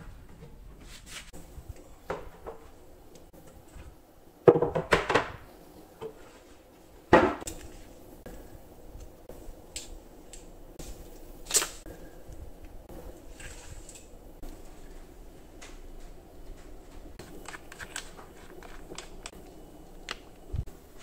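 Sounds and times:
wooden panels knocking: 4.5s - 5.4s.

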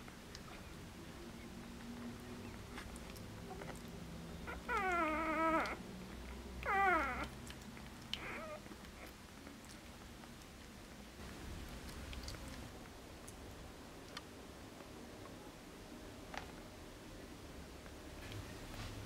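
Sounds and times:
puppy crying: 4.4s - 5.8s, 6.6s - 7.4s, 8.1s - 9.2s.

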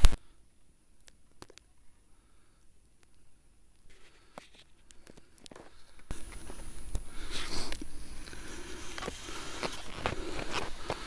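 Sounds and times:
skis and poles crunching in snow: 3.9s - 11.0s.

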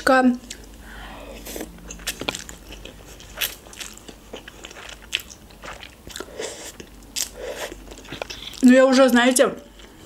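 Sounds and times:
chewing: 1.4s - 8.6s.

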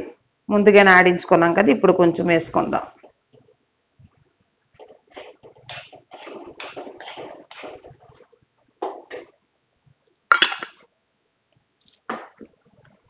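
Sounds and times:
curry simmering: 2.9s - 10.8s
metal spoon scraping a pan: 4.8s - 8.3s.

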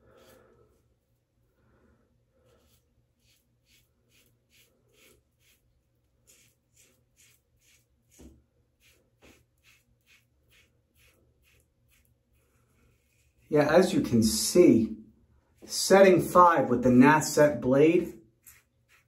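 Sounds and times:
safety razor scraping stubble: 2.6s - 12.2s, 18.4s - 19.0s.

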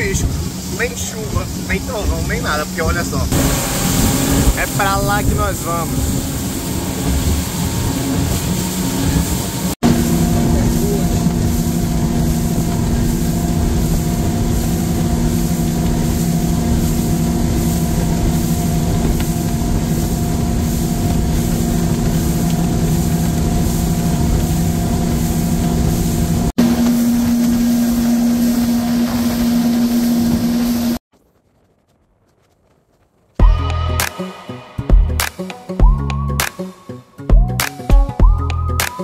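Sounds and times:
outboard motor running: 0.0s - 31.0s
water rushing: 0.0s - 31.0s
wind rushing: 0.0s - 31.0s.

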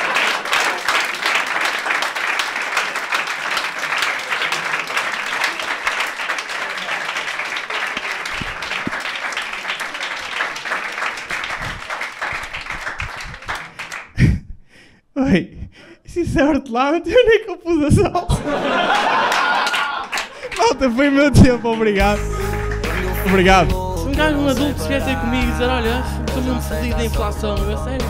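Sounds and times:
audience applauding: 0.0s - 14.2s, 18.6s - 23.8s.

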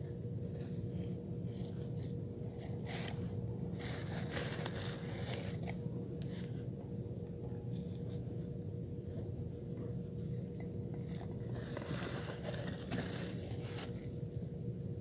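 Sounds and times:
steady low hum: 0.0s - 15.0s
hands rustling plastic: 1.5s - 6.5s, 10.9s - 14.4s.

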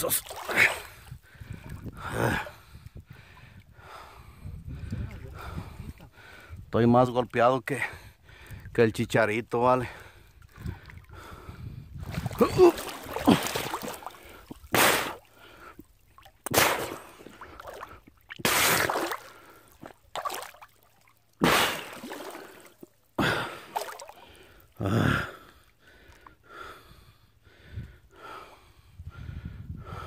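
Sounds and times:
wading through shallow water: 0.0s - 26.8s
man breathing hard: 0.5s - 6.7s, 7.8s - 8.7s, 9.9s - 15.9s, 22.4s - 30.0s.

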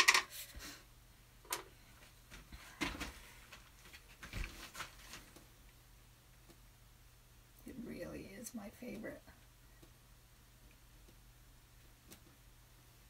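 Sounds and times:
faint clicks and soft knocks: 12.0s - 12.4s.

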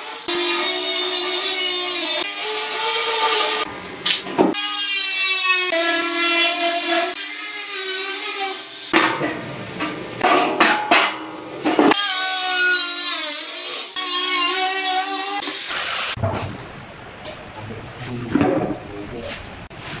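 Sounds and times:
angle grinder cutting steel: 0.0s - 3.7s, 4.6s - 9.0s, 11.9s - 15.8s
knocks and scraping of steel drum: 8.9s - 12.0s.

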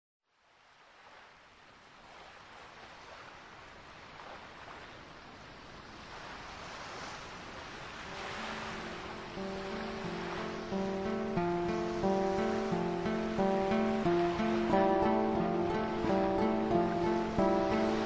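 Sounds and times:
sea waves washing on shore: 0.4s - 18.0s
acoustic guitar notes: 8.1s - 18.0s.

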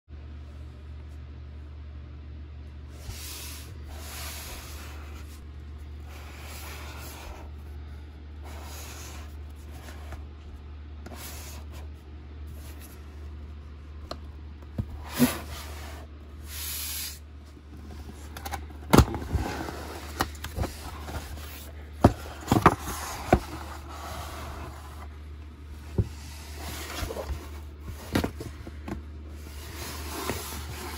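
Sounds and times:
steady low hum: 0.1s - 30.9s
cardboard box sliding and rubbing: 2.9s - 5.4s, 6.0s - 7.6s, 14.9s - 17.0s, 19.1s - 25.2s, 25.8s - 28.6s, 29.3s - 30.9s.

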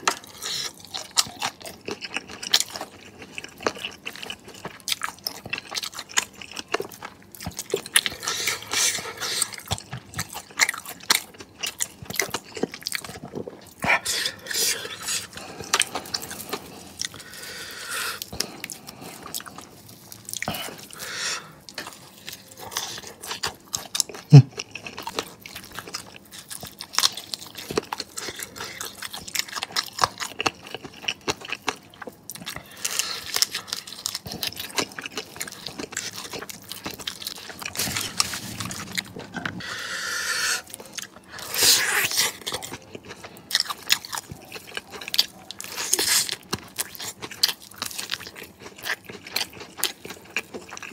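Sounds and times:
crunching fried chicken: 0.0s - 50.9s.

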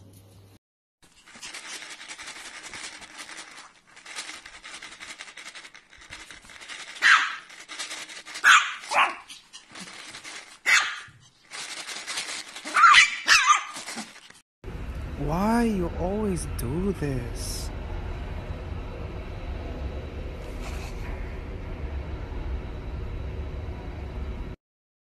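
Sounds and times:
puppy yapping: 7.0s - 7.5s, 8.4s - 9.7s, 10.6s - 11.2s, 12.6s - 14.2s.

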